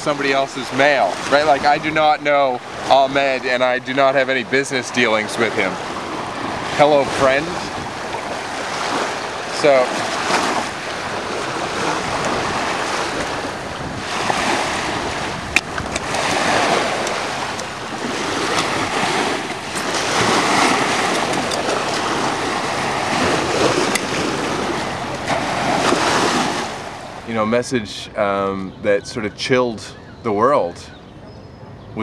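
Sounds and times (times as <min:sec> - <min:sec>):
waves washing on gravel shore: 0:05.5 - 0:27.2.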